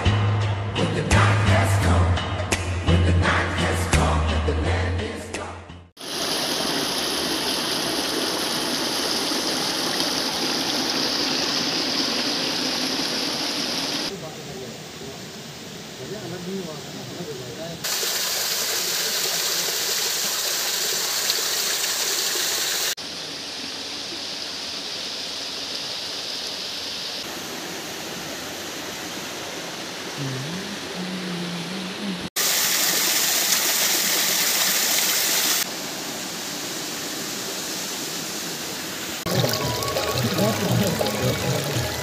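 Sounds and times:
stream rushing over rocks: 6.0 - 14.1, 17.8 - 42.0.

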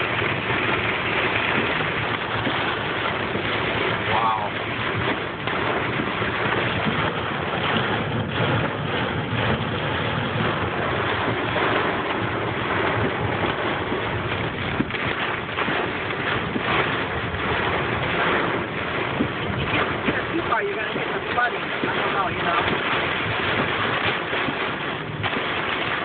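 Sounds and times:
hail and rain on car roof: 0.0 - 26.0.

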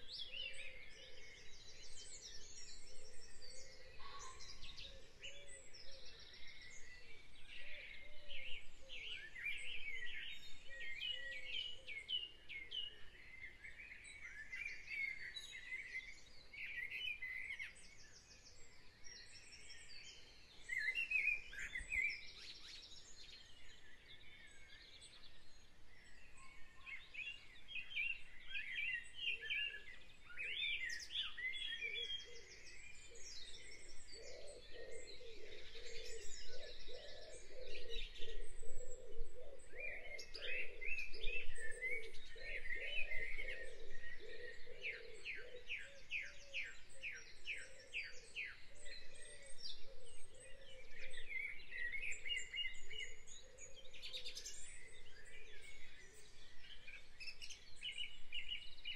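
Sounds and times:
birds chirping and trilling: 0.0 - 58.9.

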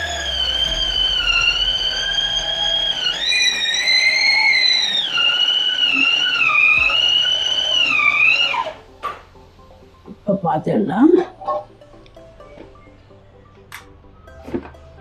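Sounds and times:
mixer grinder motor whining: 0.0 - 9.4.

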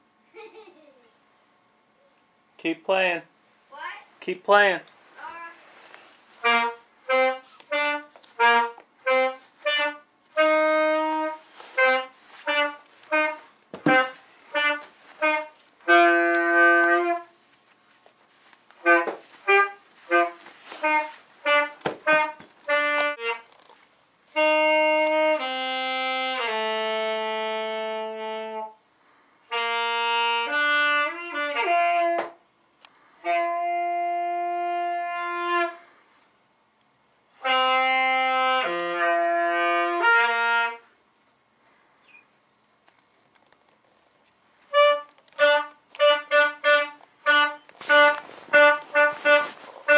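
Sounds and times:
saxophone playing: 6.3 - 17.4, 18.8 - 23.6, 24.3 - 28.8, 29.5 - 32.4, 33.2 - 35.9, 37.4 - 40.9, 44.7 - 49.9.

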